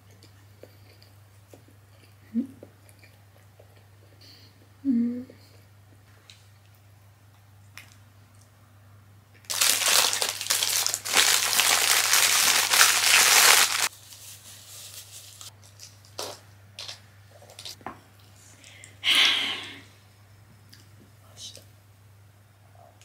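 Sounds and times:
paper wrapping crinkling: 9.5 - 17.8.

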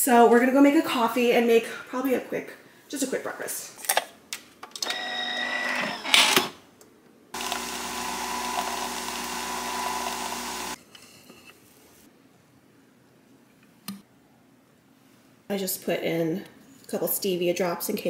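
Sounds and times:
coffee machine whirring hum: 7.4 - 10.8.

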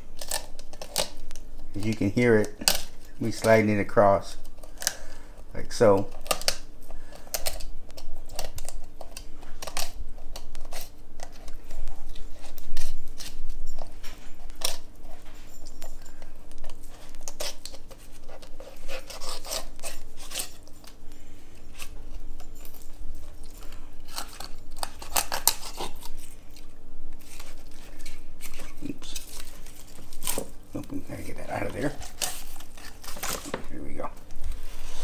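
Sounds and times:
knife scraping over fish bones: 10.6 - 13.9, 16.6 - 21.0, 23.4 - 30.6, 31.6 - 33.6.

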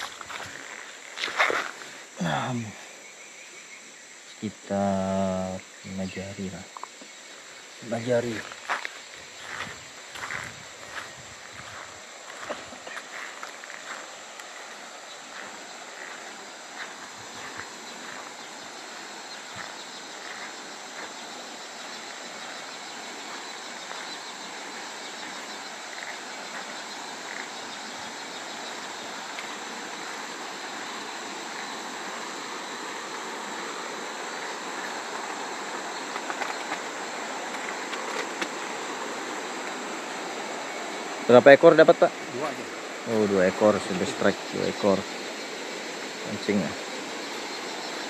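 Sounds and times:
insects droning: 0.0 - 48.0.

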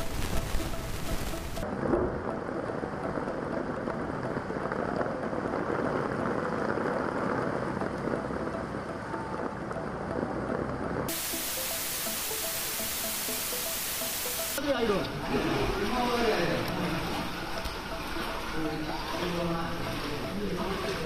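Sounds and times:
heavy rain on water: 0.0 - 8.1, 11.1 - 14.6.

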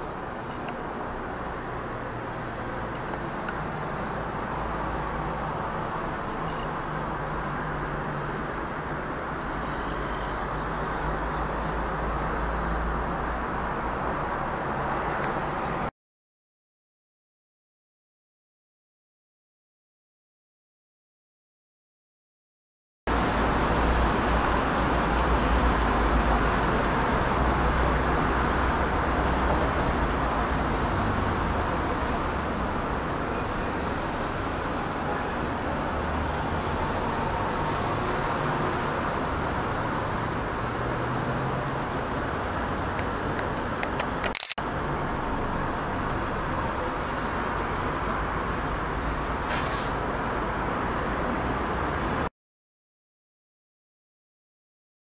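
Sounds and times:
outdoor rumble and hiss: 0.0 - 15.9, 23.1 - 52.3
sharp click: 43.4 - 44.6.

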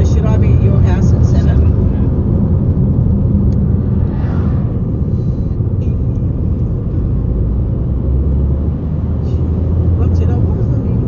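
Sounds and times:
road and engine rumble in vehicle: 0.0 - 11.0.

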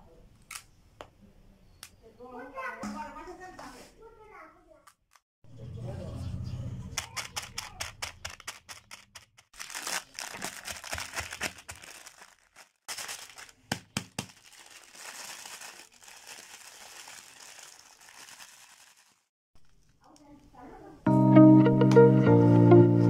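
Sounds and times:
plastic snack packet crinkling: 7.0 - 20.3.

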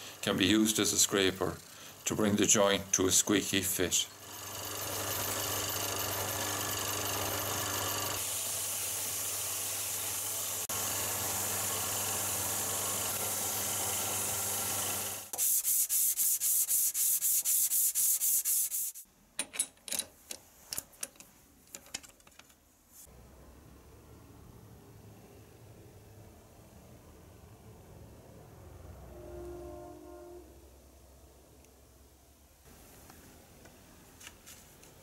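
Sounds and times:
wood lathe humming: 4.2 - 15.3
file and sandpaper rubbing wood: 15.3 - 19.0
quick rubbing strokes: 15.4 - 19.0.

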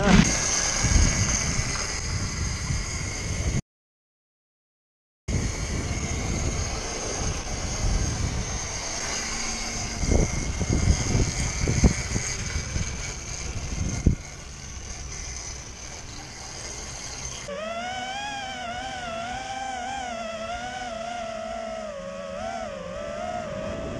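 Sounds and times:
electric scooter whine: 0.0 - 3.6, 5.3 - 23.9
wind rumbling on camera: 0.0 - 3.6, 5.3 - 23.9
wavering electronic music: 17.2 - 23.9.

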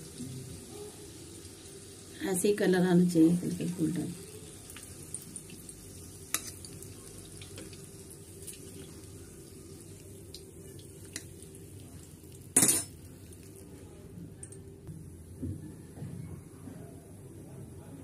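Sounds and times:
oil sizzling: 0.0 - 13.8
metal utensils clicking on pan: 12.6 - 13.0.

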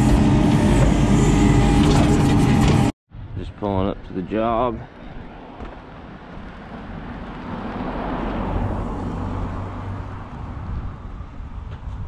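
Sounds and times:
vehicle engine hum: 4.8 - 12.0.

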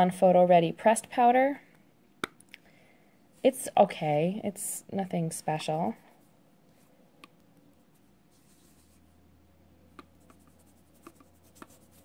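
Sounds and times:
fingertips rubbing skin: 10.0 - 12.0.

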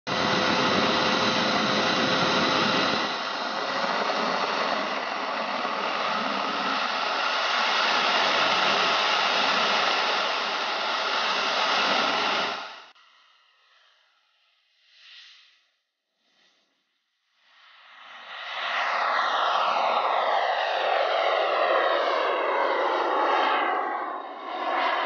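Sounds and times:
jet turbine running: 0.0 - 13.0, 18.2 - 25.0.

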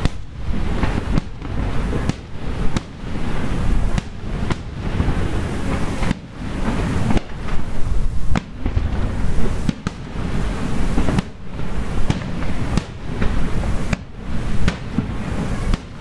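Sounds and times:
firework shells bursting: 0.0 - 16.0
fireworks rumble and crackle: 0.0 - 16.0.

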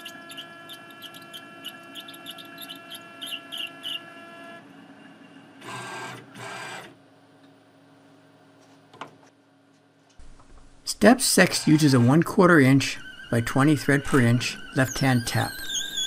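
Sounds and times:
lathe whining and humming: 0.0 - 7.0.

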